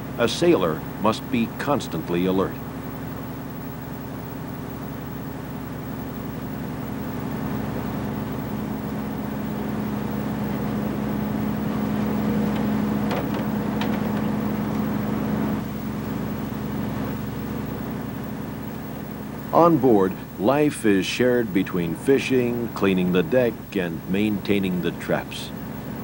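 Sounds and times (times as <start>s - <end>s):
boat engine humming: 0.0s - 26.0s.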